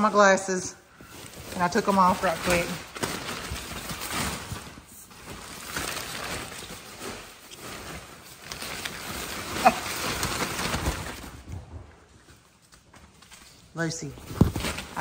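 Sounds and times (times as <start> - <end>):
monkeys scrambling through tunnels: 1.2 - 12.4.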